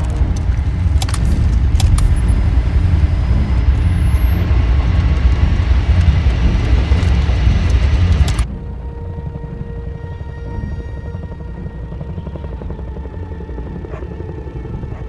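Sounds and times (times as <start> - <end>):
sharp clicks: 0.0 - 2.6, 4.3 - 8.5
thin high whine: 0.0 - 12.7
helicopter rotor and engine drone: 0.0 - 15.0.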